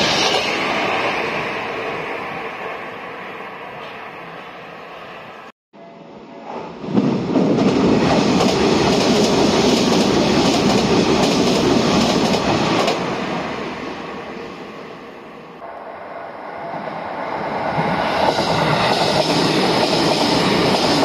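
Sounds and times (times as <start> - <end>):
electric train passing: 0.0 - 21.0.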